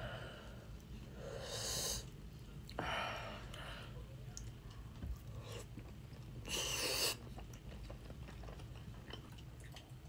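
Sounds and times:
chip chewing crunch: 0:05.6 - 0:10.0.

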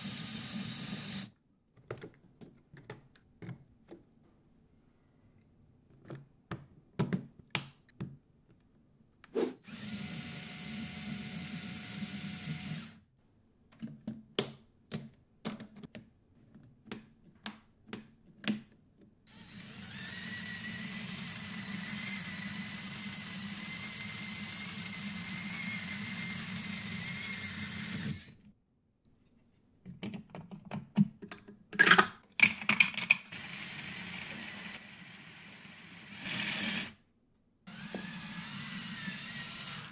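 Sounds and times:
plastic parts clicking: 0:29.9 - 0:33.3.

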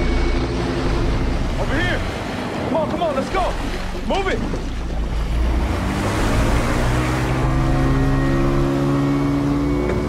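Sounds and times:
low drone of held tones: 0:00.0 - 0:02.1, 0:04.6 - 0:10.0
outboard engine running: 0:00.0 - 0:10.0
water noise: 0:00.0 - 0:10.0.

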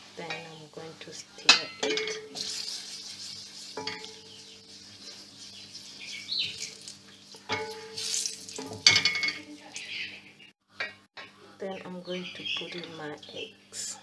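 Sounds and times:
spice sizzling in hot oil: 0:00.0 - 0:08.9.

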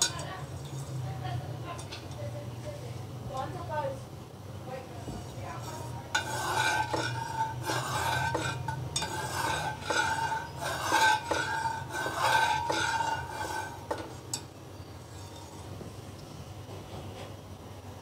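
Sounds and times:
ladle scraping metal pot: 0:00.0 - 0:01.0, 0:05.2 - 0:15.7
pot ringing: 0:06.2 - 0:14.5.

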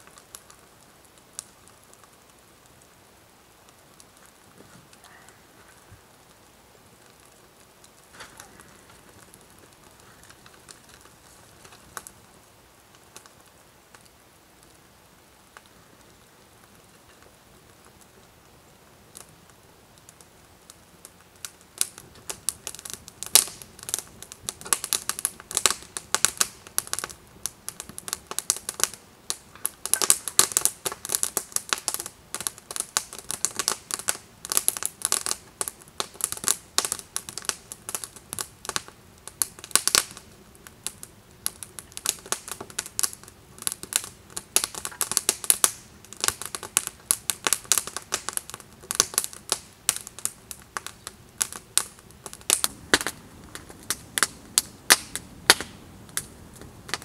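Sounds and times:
campfire crackling and popping: 0:00.0 - 0:57.0.

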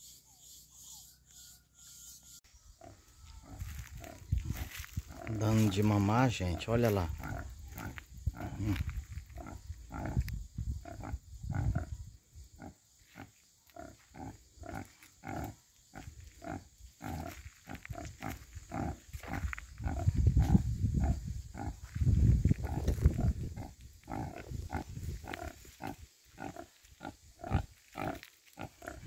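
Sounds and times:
sow grunting: 0:02.8 - 0:05.8, 0:07.1 - 0:10.2, 0:12.6 - 0:21.8, 0:22.6 - 0:29.0.

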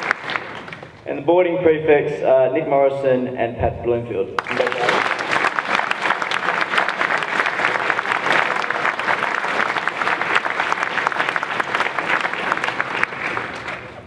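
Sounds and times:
audience applause: 0:00.0 - 0:01.0, 0:04.4 - 0:14.0.

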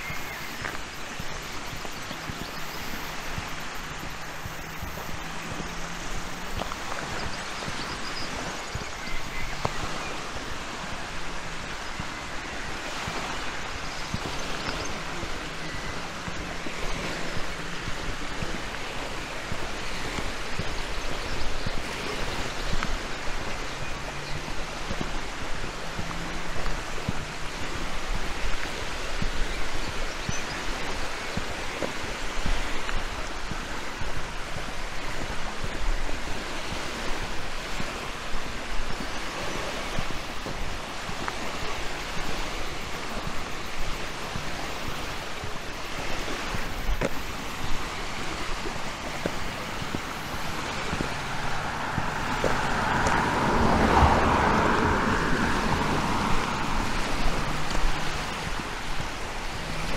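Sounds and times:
waves lapping on pebble beach: 0:00.0 - 0:59.9.

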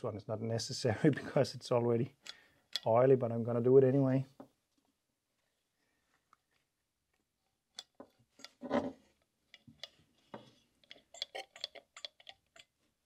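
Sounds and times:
oil can pump clicking: 0:10.8 - 0:12.8
oil squirting: 0:10.8 - 0:12.8.

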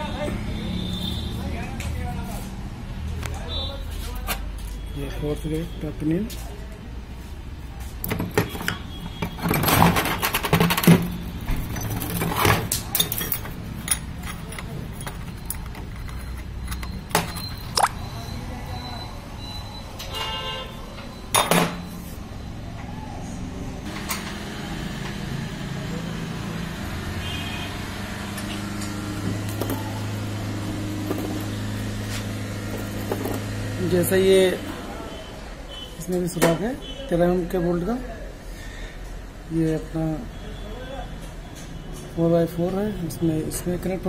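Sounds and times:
metal gears clinking and scraping: 0:08.4 - 0:17.7, 0:30.6 - 0:33.6.

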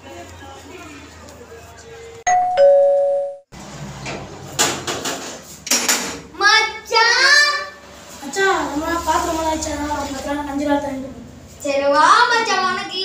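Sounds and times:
two-note electronic doorbell chime: 0:02.3 - 0:03.4.

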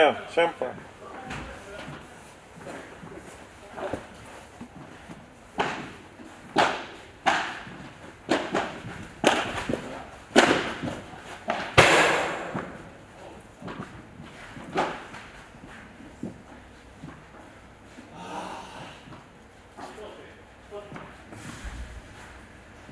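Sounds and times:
loud crash: 0:11.8 - 0:13.0
padel ball hits echoing: 0:11.8 - 0:13.1.

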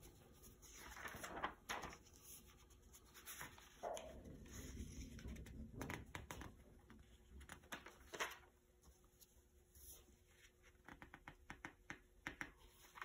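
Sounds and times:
magazine pages rustling: 0:00.0 - 0:03.8, 0:07.5 - 0:08.5.

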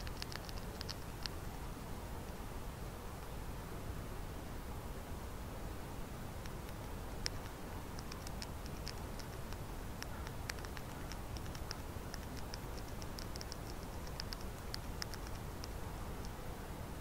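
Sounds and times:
high-pitched ticks and clicks: 0:00.0 - 0:01.4, 0:06.4 - 0:16.4
steady recorder hiss: 0:00.0 - 0:17.0.

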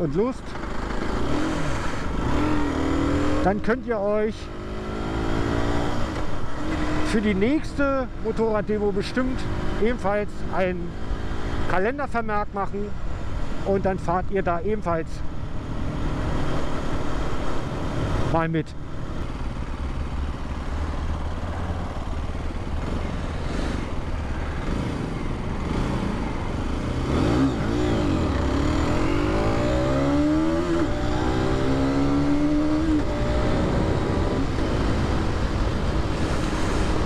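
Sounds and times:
motorcycle engine revving: 0:00.0 - 0:08.2, 0:19.0 - 0:37.0
wind and road noise: 0:00.0 - 0:37.0.

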